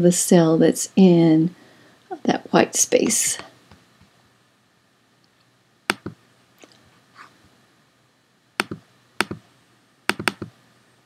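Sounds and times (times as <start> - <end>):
computer mouse clicks: 5.9 - 6.2, 8.6 - 9.4, 10.1 - 10.6.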